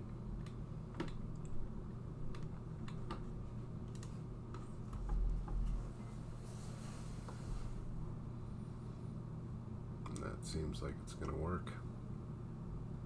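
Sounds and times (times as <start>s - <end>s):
steady low hum: 0.0s - 13.0s
computer mouse and keyboard clicks: 0.4s - 1.6s, 2.3s - 5.8s.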